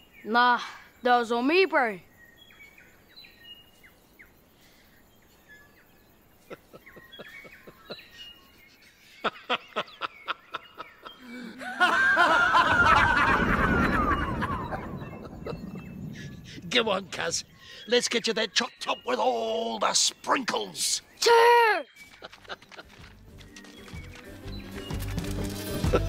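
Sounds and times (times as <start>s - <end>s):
soft birdsong: 0.0s - 26.0s
person laughing: 6.5s - 16.4s, 22.1s - 23.1s.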